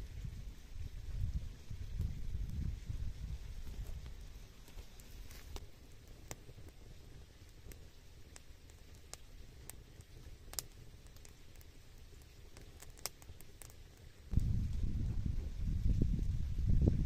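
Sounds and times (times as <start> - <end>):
wood fire crackling: 0.0 - 17.0
low steady rumble: 14.1 - 17.0.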